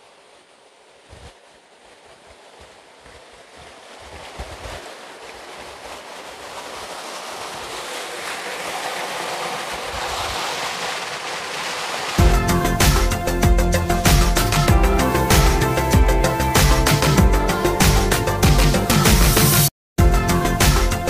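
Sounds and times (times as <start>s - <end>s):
wind buffeting microphone: 0.8s - 13.8s.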